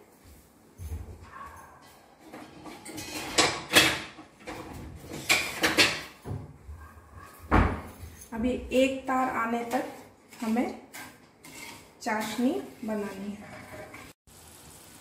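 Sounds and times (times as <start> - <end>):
sharp knocks and scrapes: 0.8 - 8.4, 9.6 - 14.2.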